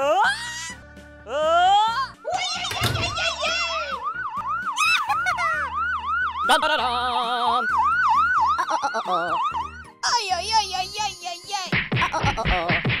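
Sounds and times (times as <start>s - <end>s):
children's music: 1.4s - 5.7s, 10.0s - 12.8s
siren yelping: 1.9s - 10.0s.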